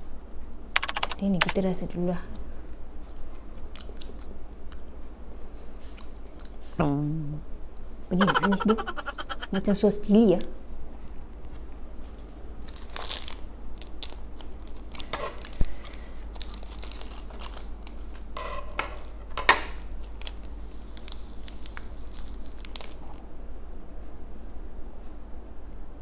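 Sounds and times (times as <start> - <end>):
sharp clicks: 0.8 - 1.6, 8.2 - 9.6
plastic sachets crinkling: 16.4 - 17.6.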